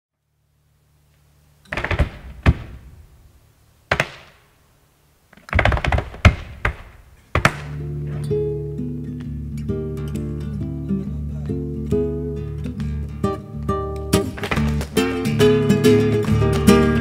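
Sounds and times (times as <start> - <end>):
acoustic guitar notes: 7.2 - 17.0
flamenco percussion strikes: 13.9 - 17.0.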